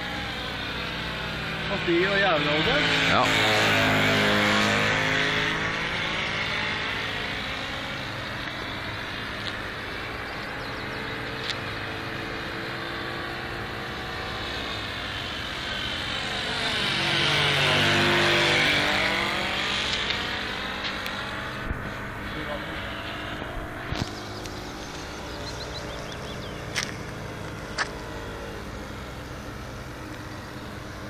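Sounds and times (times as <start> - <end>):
model airplane engine buzzing: 0.0 - 31.0.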